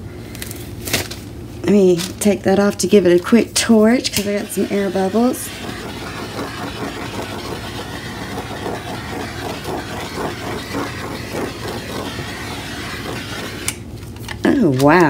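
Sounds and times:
torch flame hissing: 4.2 - 13.8.

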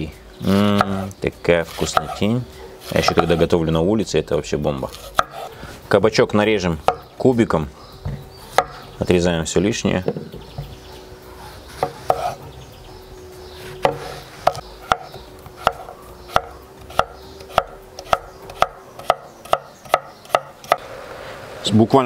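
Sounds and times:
knife chopping on wooden board: 1.7 - 2.2, 2.8 - 3.5, 4.9 - 5.5, 6.8 - 7.1, 8.1 - 8.8, 11.7 - 12.4, 13.8 - 20.8.

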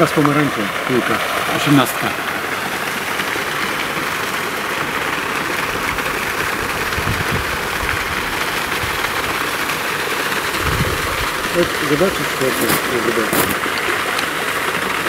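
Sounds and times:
wind on microphone: 6.5 - 9.0, 10.6 - 11.5.

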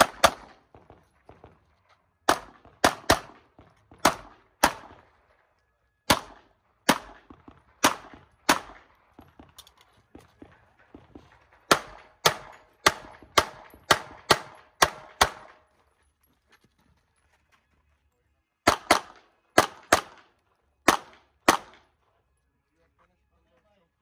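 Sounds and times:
gunshots: 0.0 - 1.6, 2.3 - 5.1, 6.1 - 9.5, 10.4 - 15.6, 18.6 - 21.9.

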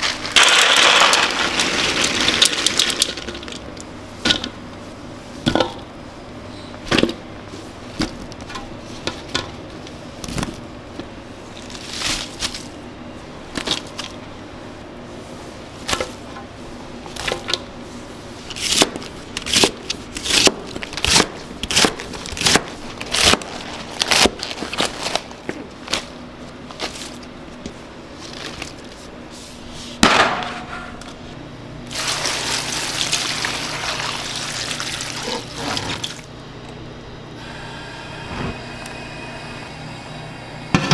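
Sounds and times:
water pouring into pot: 32.0 - 35.5.

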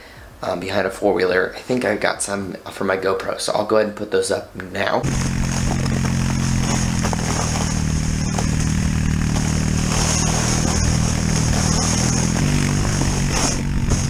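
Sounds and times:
atv engine running: 5.0 - 14.0
plastic sled sliding over snow: 5.0 - 14.0.

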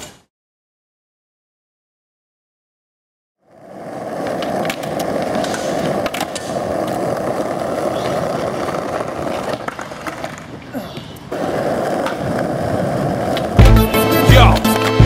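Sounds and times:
skateboard wheels rolling on asphalt: 3.4 - 15.0.

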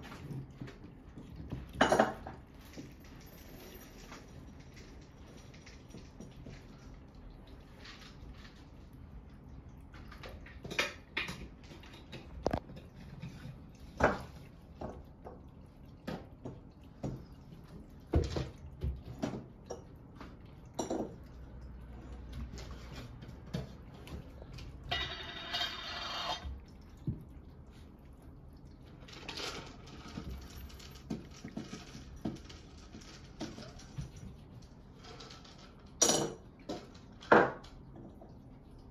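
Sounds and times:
cat food rustling and pouring: 0.0 - 38.9
dishes clinking: 1.6 - 4.4, 20.7 - 21.4, 24.8 - 26.5, 35.9 - 37.6.

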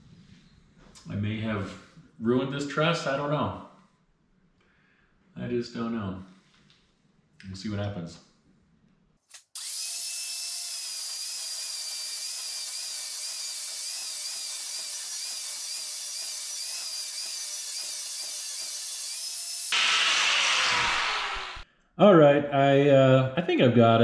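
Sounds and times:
angle grinder grinding steel: 9.4 - 21.6.

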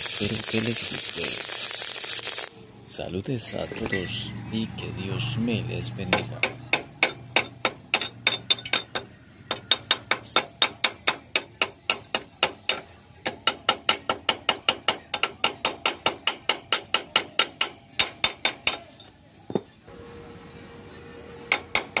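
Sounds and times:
hammer tapping on metal: 6.1 - 18.9, 21.5 - 22.0.

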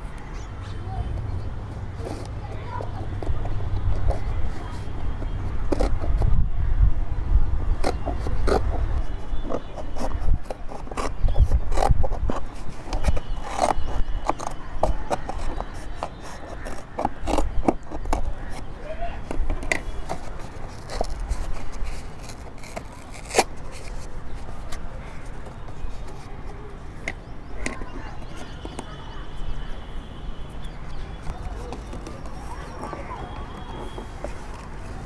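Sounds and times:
scissors snipping carton: 7.8 - 29.0, 30.9 - 35.0
carton crinkling: 7.8 - 29.7, 30.6 - 35.0.

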